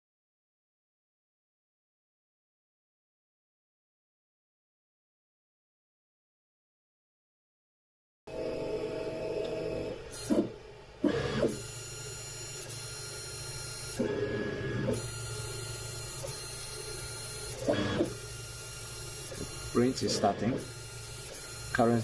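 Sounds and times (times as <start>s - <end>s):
printer fan hum with whine: 8.3s - 22.0s
stepper motors whirring: 8.3s - 22.0s.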